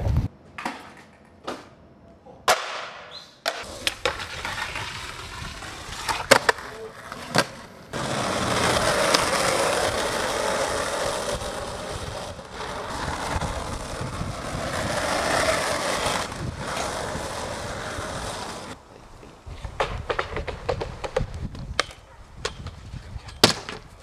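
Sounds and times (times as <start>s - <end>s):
skateboard wheels rolling on asphalt: 2.5s - 24.0s.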